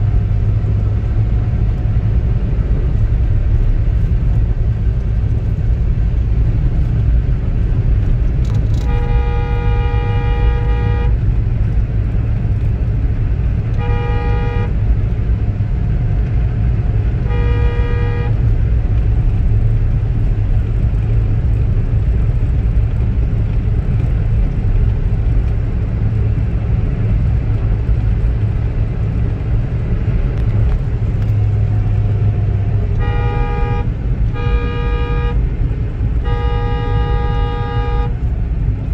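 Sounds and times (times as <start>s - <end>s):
road and engine rumble in car: 0.0s - 38.9s
vehicle horn honking: 8.7s - 11.2s, 13.7s - 14.8s, 17.2s - 18.4s, 32.9s - 35.4s, 36.2s - 38.2s.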